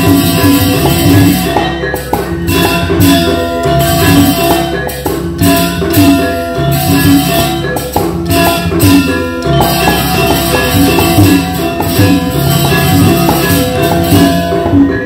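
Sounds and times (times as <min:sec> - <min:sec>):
cymbal clashes: 0:00.0 - 0:15.0
drumming: 0:00.0 - 0:15.0
metallophones ringing: 0:00.0 - 0:15.0.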